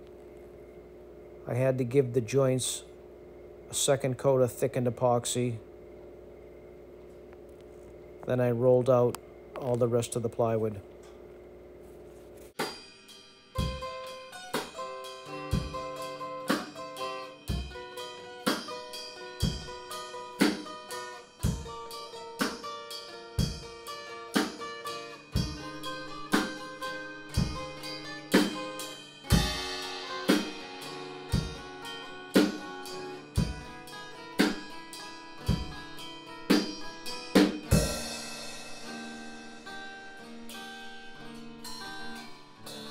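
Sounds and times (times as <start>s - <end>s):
guitar and drum music: 12.4s - 42.9s
cymbal crash: 12.6s - 15.9s, 25.4s - 33.1s, 36.5s - 39.8s.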